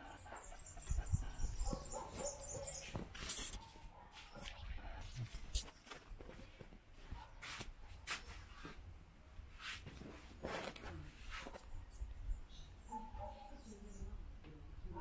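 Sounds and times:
footsteps and handling noise: 0:01.7 - 0:04.6, 0:05.3 - 0:08.9, 0:09.6 - 0:11.8.

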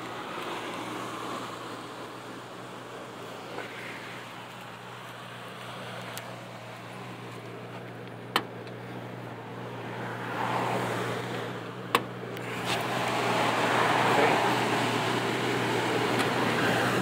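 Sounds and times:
car engine idling: 0:00.0 - 0:17.0
broad rush of noise: 0:12.4 - 0:17.0.

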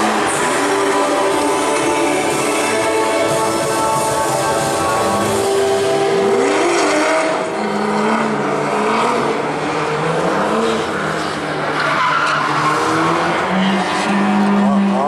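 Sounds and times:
car engine at high revs: 0:00.0 - 0:15.0.

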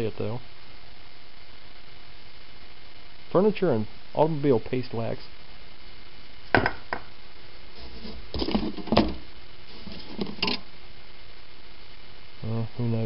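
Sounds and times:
objects knocking on hard surface: 0:06.5 - 0:07.1, 0:08.0 - 0:09.2.

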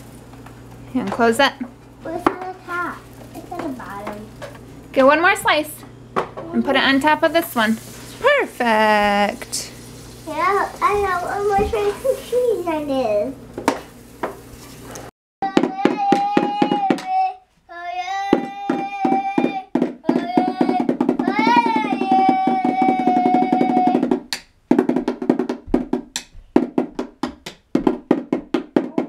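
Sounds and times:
child singing: 0:10.3 - 0:13.3, 0:15.4 - 0:24.1
toy snare drum beating: 0:15.4 - 0:17.2, 0:18.3 - 0:29.0.

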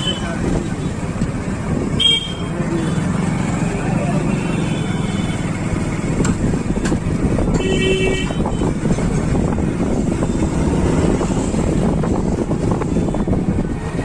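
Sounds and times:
road traffic: 0:00.0 - 0:14.0
vehicle horn toot: 0:02.0 - 0:02.5, 0:07.6 - 0:08.7
wind buffeting microphone: 0:06.0 - 0:14.0.

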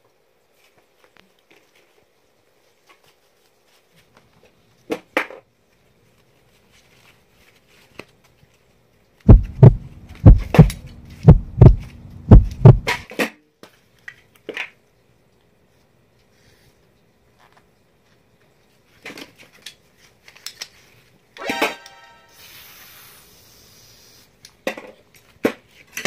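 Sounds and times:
heavy dull thumps on workbench: 0:09.3 - 0:13.0.

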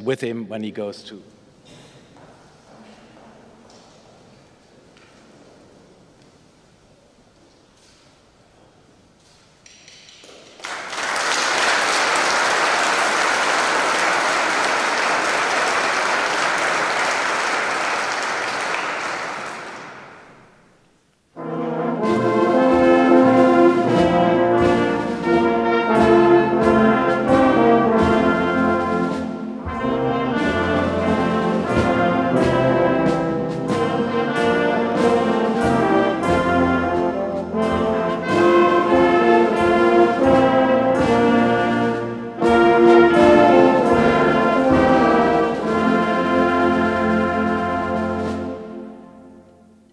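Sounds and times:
audience applause: 0:10.4 - 0:20.5
wind band playing: 0:10.6 - 0:20.3, 0:21.4 - 0:49.9.

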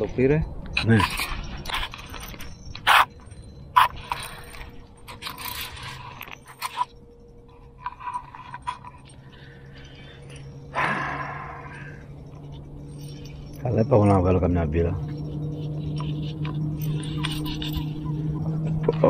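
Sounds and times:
fishing reel whirring and clicking: 0:15.1 - 0:18.8.

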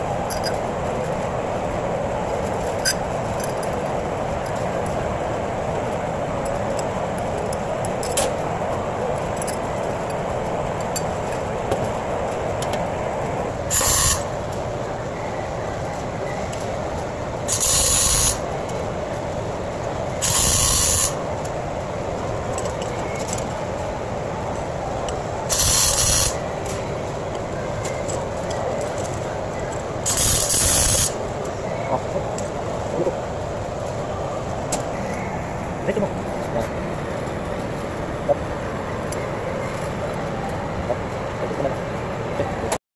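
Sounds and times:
steady background noise: 0:00.0 - 0:42.8
welding arc bursts: 0:13.7 - 0:14.3, 0:17.5 - 0:18.4, 0:20.2 - 0:21.2, 0:25.5 - 0:26.4, 0:30.0 - 0:31.2.

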